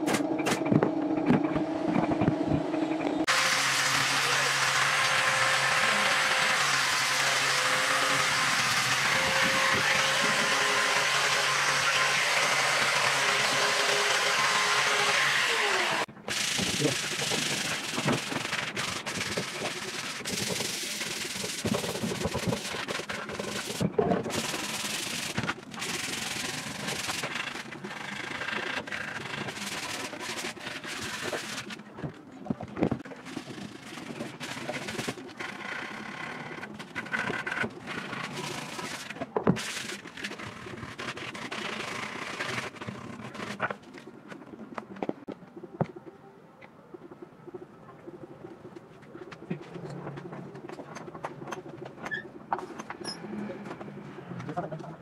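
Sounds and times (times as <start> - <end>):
angle grinder sanding wood: 3.3 - 31.8
sandpaper rubbing wood by hand: 3.3 - 31.8.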